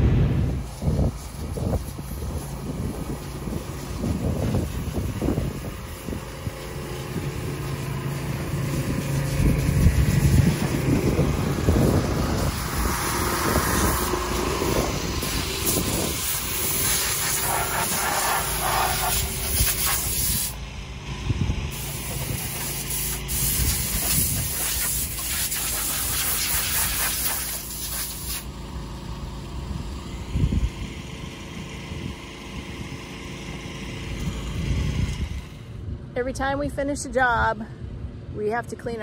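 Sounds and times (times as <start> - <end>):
steady low hum: 0.0 - 25.3
air blow gun hissing: 0.2 - 20.6, 21.7 - 28.5.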